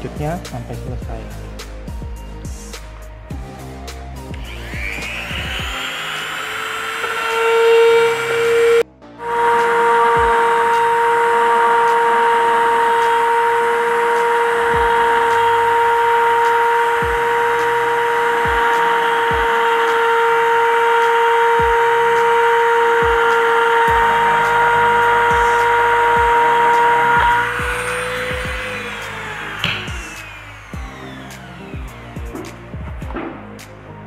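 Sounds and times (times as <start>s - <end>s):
rotary tool cutting plastic pipe: 4.4s - 32.6s.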